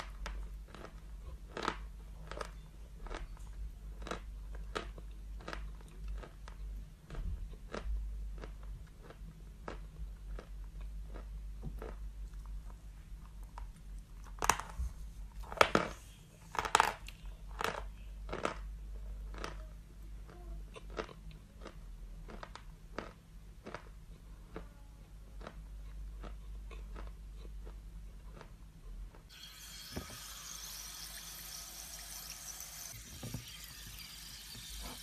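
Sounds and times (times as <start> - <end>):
chalk being chewed: 0.3 - 9.8, 25.4 - 28.5.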